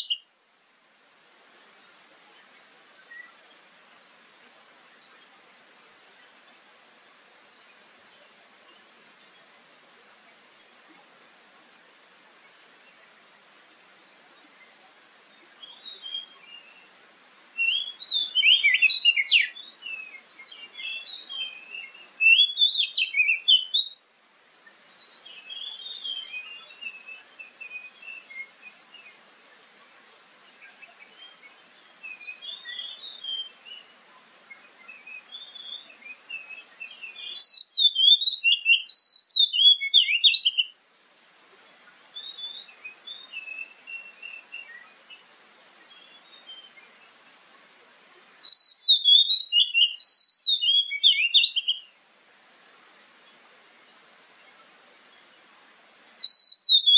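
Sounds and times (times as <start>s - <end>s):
bird singing whistled phrases: 0.0s - 0.2s, 15.6s - 17.0s, 17.6s - 24.0s, 25.2s - 29.2s, 31.1s - 33.9s, 34.9s - 40.8s, 42.2s - 45.0s, 48.4s - 52.0s, 56.2s - 56.9s.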